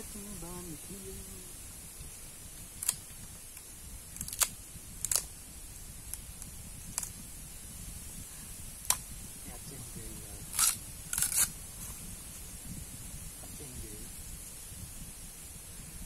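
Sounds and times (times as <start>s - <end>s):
knife snapping bamboo husk: 4.2s - 5.3s.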